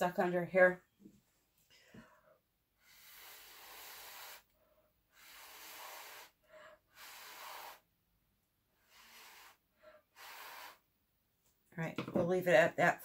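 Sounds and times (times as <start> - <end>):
air blown through a straw: 2.8 - 4.5, 5.1 - 7.9, 8.8 - 10.8.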